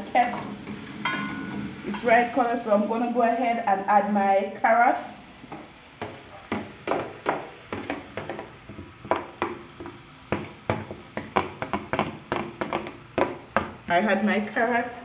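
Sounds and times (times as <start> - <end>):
metal spoon clinking on plate and pot: 0.2 - 2.1.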